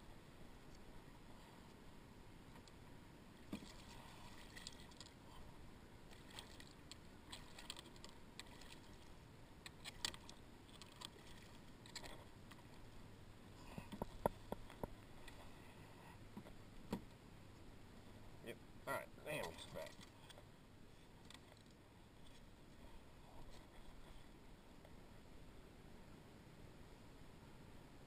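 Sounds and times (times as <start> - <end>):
small water splashes: 3.4 - 5.4, 6.0 - 12.9.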